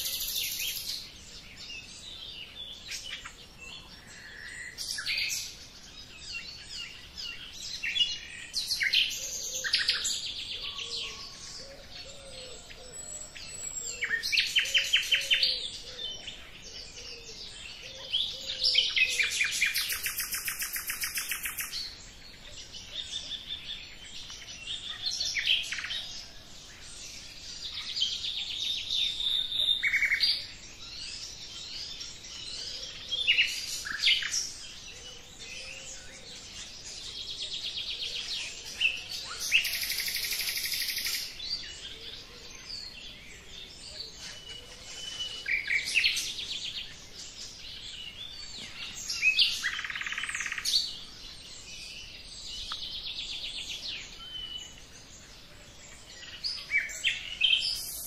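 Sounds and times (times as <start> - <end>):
songbirds chirping: 0.0 - 58.0.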